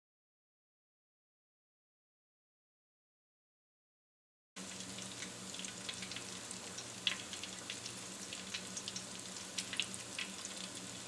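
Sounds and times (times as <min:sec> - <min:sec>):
food sizzling in hot oil: 0:04.6 - 0:11.0.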